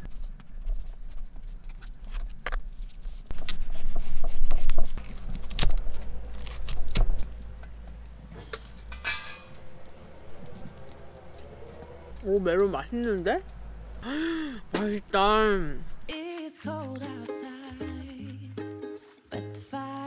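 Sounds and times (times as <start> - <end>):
low rumble: 4.1 - 16.1.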